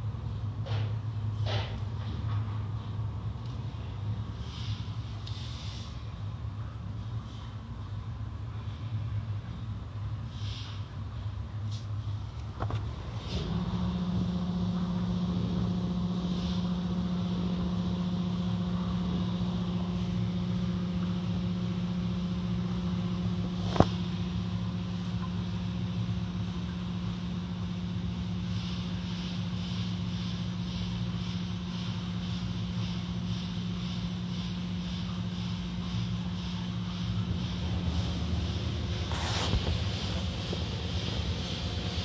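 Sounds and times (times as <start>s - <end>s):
steady low hum: 0.0s - 42.0s
car wash brushes washing over car: 12.6s - 24.3s, 27.9s - 42.0s
rhythmic swishing: 27.3s - 42.0s.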